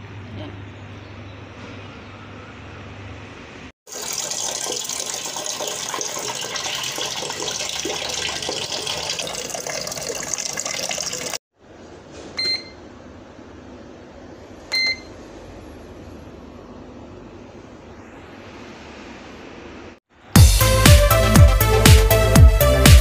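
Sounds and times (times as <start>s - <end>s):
tap water pouring into metal pot: 3.9s - 11.4s
short electronic beeps: 12.4s - 12.8s, 14.7s - 15.1s.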